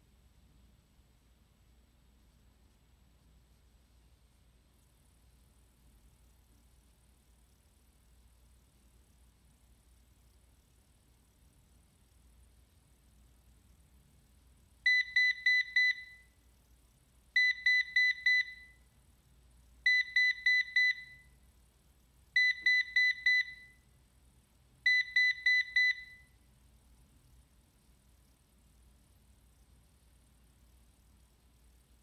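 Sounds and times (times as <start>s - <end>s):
robot vacuum error beeps: 22.4s - 23.7s.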